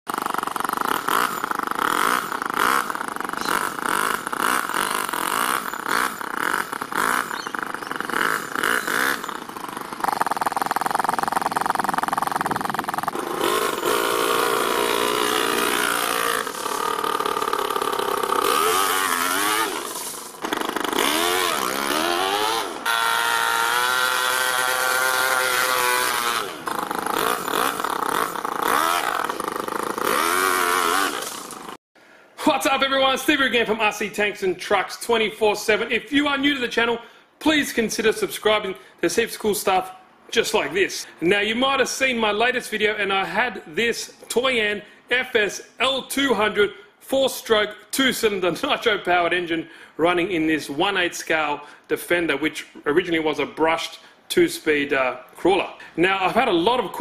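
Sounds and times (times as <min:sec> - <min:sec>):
model engine revving: 0:00.1 - 0:31.8.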